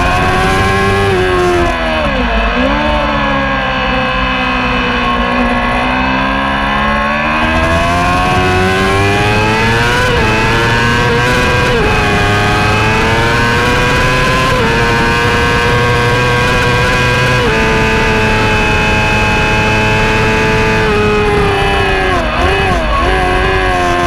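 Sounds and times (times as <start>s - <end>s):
racing motorcycle engine accelerating: 0.0s - 24.0s
wind rush on microphone: 7.4s - 24.0s.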